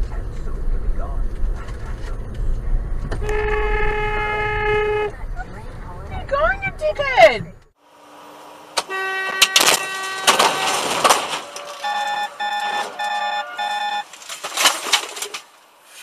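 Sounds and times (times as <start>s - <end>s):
vehicle horn honking: 3.2s - 5.2s, 8.8s - 14.1s
vehicle collision bangs and crunches: 8.5s - 16.0s.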